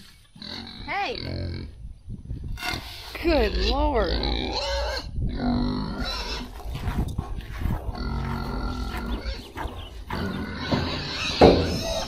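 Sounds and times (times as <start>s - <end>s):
pigs grunting: 2.6s - 12.0s.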